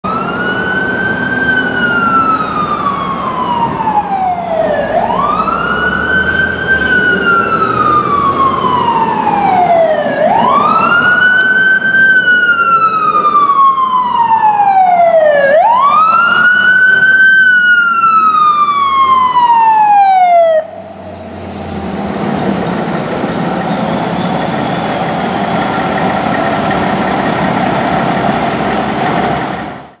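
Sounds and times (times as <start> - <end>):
fire engine siren wailing: 0.0 - 30.0
truck engine running: 20.8 - 30.0.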